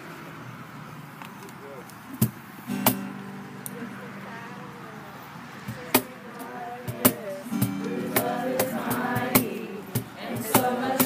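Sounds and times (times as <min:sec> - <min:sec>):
cajon slaps: 0:02.2 - 0:03.8, 0:06.9 - 0:11.0
acoustic guitar: 0:02.2 - 0:11.0
young voices singing: 0:03.8 - 0:11.0.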